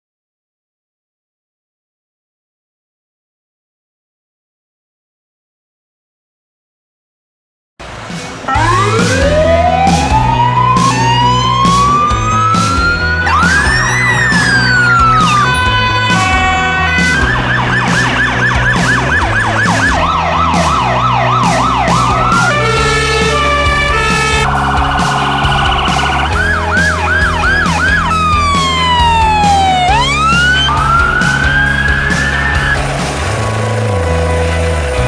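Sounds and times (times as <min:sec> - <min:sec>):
background music with steady beat: 0:07.8 - 0:35.0
emergency vehicle sirens: 0:07.8 - 0:35.0.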